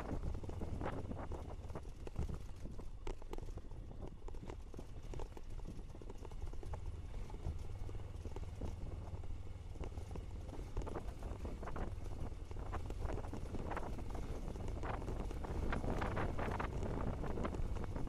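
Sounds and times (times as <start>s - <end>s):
motorcycle engine rumble: 0.0s - 18.0s
motorcycle rattling over stones: 0.0s - 18.0s.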